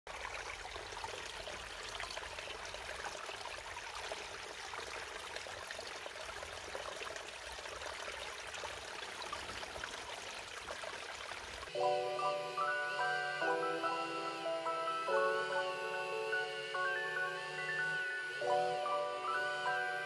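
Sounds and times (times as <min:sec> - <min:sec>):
stream trickling over stones: 0:00.1 - 0:11.8.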